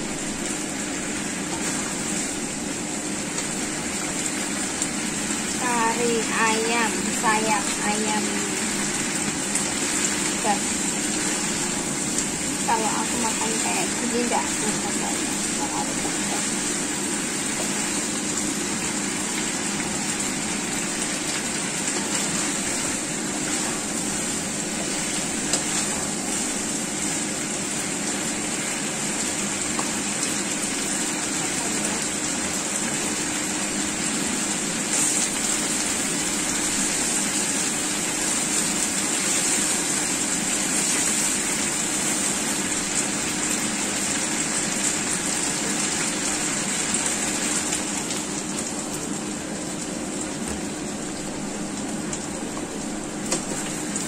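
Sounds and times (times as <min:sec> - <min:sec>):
food sizzling in a frying pan: 0:00.0 - 0:54.0.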